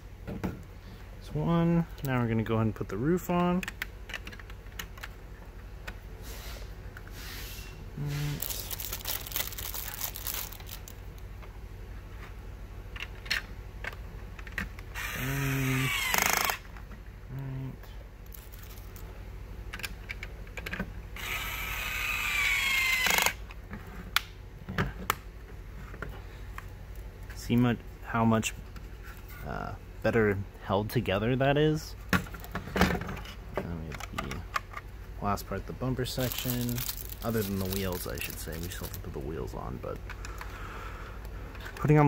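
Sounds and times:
toy power drill whirring: 0:15.0 - 0:16.6, 0:21.2 - 0:23.4.

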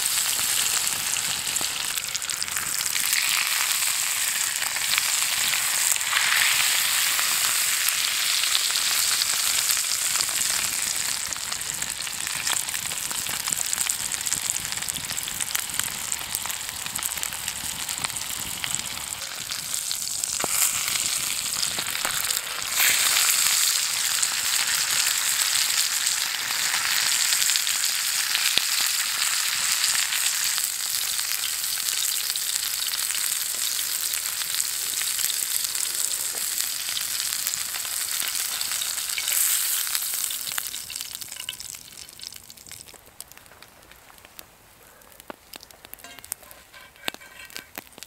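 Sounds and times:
steak sizzling in a skillet: 0:00.0 - 0:43.0, 0:45.6 - 0:48.0
pops and crackles: 0:11.6 - 0:23.3, 0:37.6 - 0:48.0.

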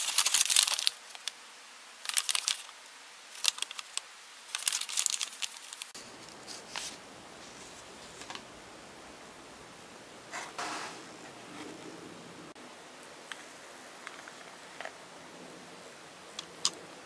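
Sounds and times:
paper rustling and crinkling: 0:00.0 - 0:01.4, 0:02.0 - 0:08.4
faint steady hiss: 0:00.0 - 0:17.0.

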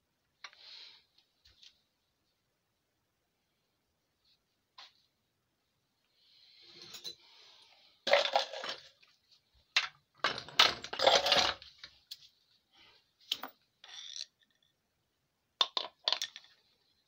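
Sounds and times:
metal parts and tools clinking: 0:06.7 - 0:07.2, 0:09.8 - 0:11.7, 0:13.3 - 0:14.7.

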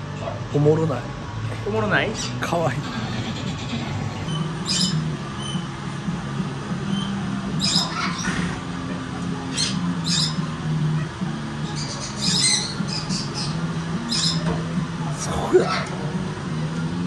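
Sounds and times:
steady low hum: 0:00.0 - 0:17.0
small animal squeaking: 0:02.9 - 0:05.7, 0:06.9 - 0:08.6, 0:09.5 - 0:10.5, 0:11.6 - 0:14.5.

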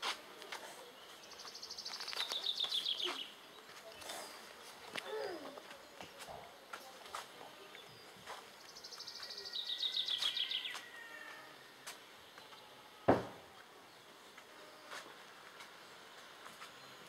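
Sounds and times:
sharp knock: 0:13.1 - 0:13.4.

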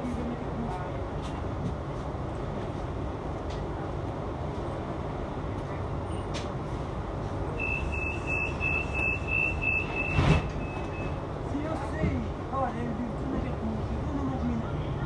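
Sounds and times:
tram low hum: 0:00.0 - 0:15.0
door warning beeps: 0:07.6 - 0:11.2.

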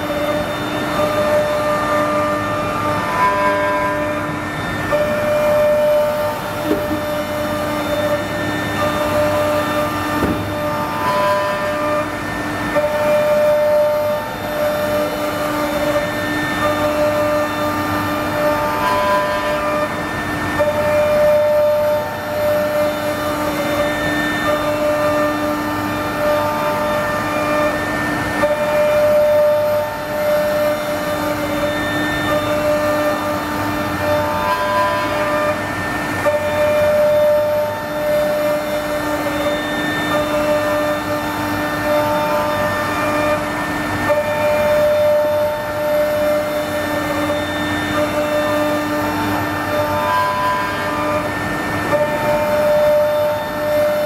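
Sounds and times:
cutter rasping in wood: 0:00.0 - 0:54.0
electric spindle whine: 0:00.0 - 0:54.0.

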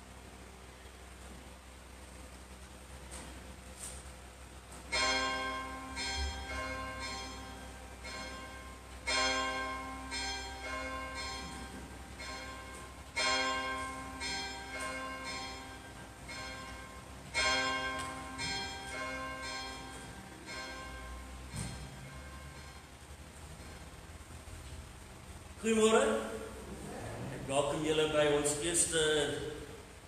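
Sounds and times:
church bells ringing: 0:04.9 - 0:24.0.

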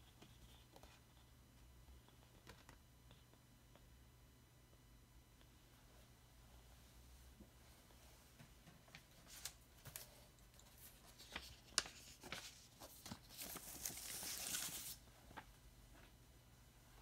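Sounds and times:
paper sleeve rustling: 0:09.2 - 0:15.0.

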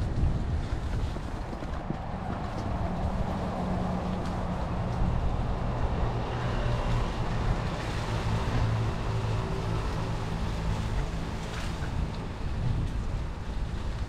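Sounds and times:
bike tyres on dirt trail: 0:00.0 - 0:10.0
wind buffeting microphone: 0:00.0 - 0:14.0.

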